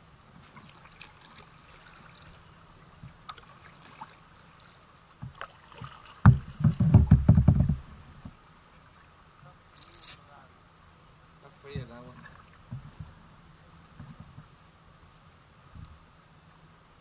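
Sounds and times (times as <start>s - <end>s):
paddle dripping in water: 0.4s - 7.1s
paddle knocking on kayak: 6.2s - 8.4s.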